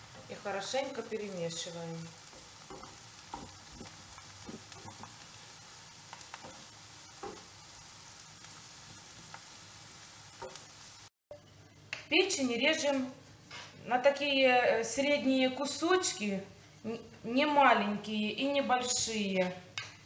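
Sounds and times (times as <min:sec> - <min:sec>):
vegetables sizzling in a frying pan: 0:00.0 - 0:11.1
wooden spatula scraping a pan: 0:02.1 - 0:07.8.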